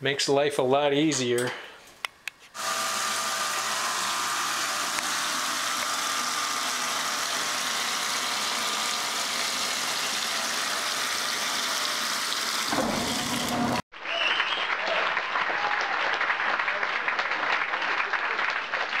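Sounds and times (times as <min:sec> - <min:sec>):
water splashing into washing machine: 0:07.9 - 0:13.8.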